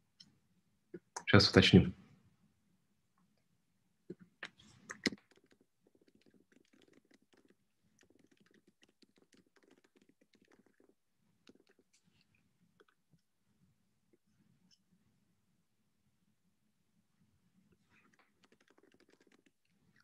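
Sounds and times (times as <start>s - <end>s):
computer keyboard typing: 4.9s - 11.8s, 18.4s - 19.5s.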